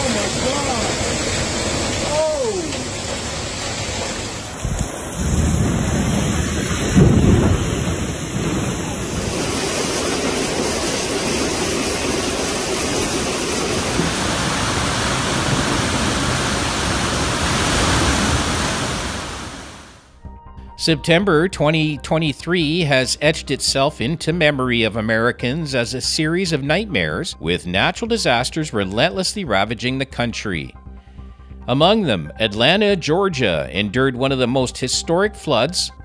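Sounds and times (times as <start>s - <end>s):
hail and rain pelting: 0.0s - 19.7s
floodwater rushing: 0.0s - 20.1s.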